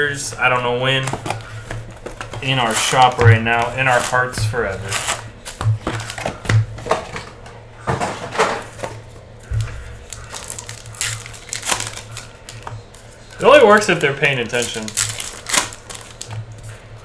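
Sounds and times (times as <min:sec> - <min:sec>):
foil wrappers crinkling: 0:00.9 - 0:06.4, 0:09.4 - 0:16.8.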